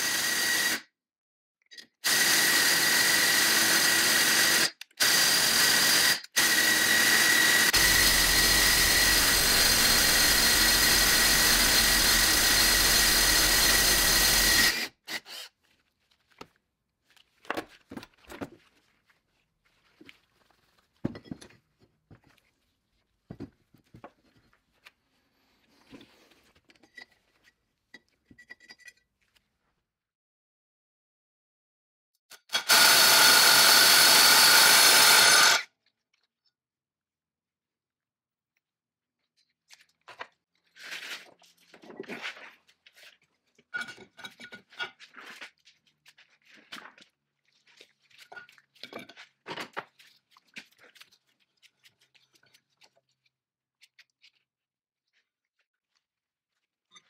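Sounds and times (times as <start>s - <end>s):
power tool running: 0.0s - 0.8s, 2.0s - 15.5s, 32.5s - 35.6s.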